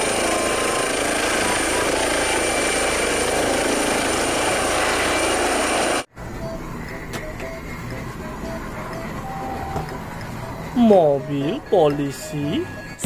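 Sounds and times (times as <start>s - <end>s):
toy helicopter rotor noise: 0.0s - 6.1s.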